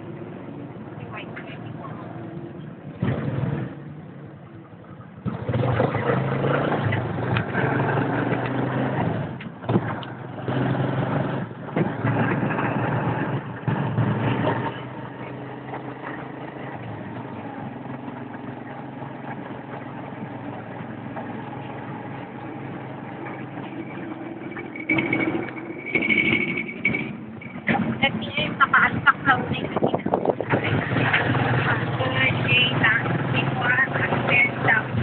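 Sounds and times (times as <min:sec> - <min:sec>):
motorcycle engine running: 0:04.9 - 0:35.0.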